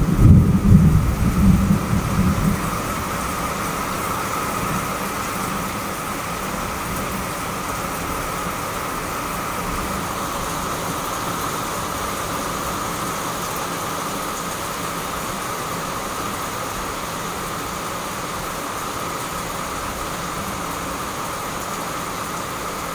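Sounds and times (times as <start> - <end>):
heavy rain falling: 0.0 - 22.9.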